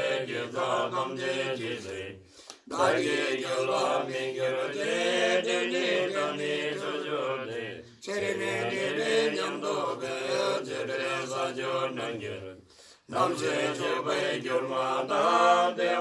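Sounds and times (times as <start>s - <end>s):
men chanting prayers: 0.0s - 16.0s.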